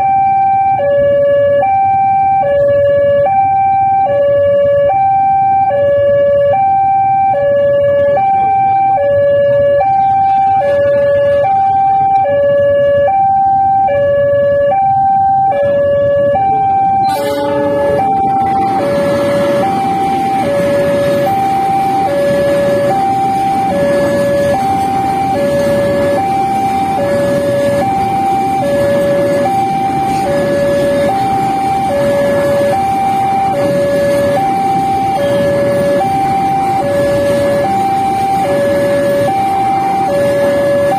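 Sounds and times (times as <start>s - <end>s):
level crossing alarm: 0.0s - 40.9s
train wheels rumbling on track: 17.0s - 40.9s.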